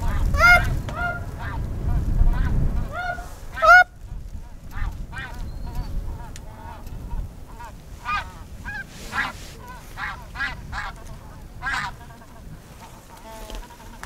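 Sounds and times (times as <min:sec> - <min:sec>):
snow goose yelps: 0:00.0 - 0:01.6, 0:02.4 - 0:03.9, 0:07.5 - 0:12.2
wind rumble on microphone: 0:00.0 - 0:14.0.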